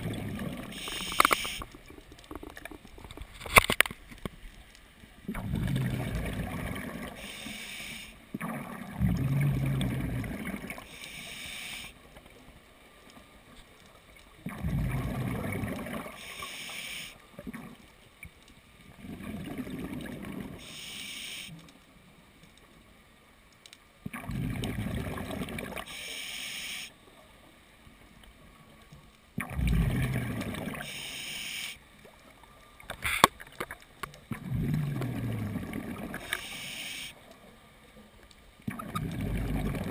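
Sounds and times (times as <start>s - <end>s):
exhaled air bubbling: 0.0s - 3.5s, 5.2s - 11.9s, 14.4s - 16.3s, 18.9s - 20.8s, 24.0s - 25.9s, 29.4s - 31.0s, 34.3s - 36.7s, 38.6s - 39.9s
regulator inhale hiss: 0.7s - 1.7s, 7.2s - 8.3s, 10.9s - 12.0s, 16.1s - 17.2s, 20.6s - 21.6s, 25.8s - 27.0s, 30.8s - 31.8s, 36.2s - 37.2s.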